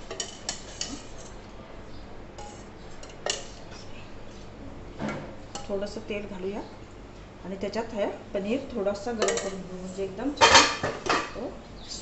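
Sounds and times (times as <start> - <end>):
metal utensils clinking: 0.0 - 1.4, 2.4 - 3.5, 9.2 - 9.6.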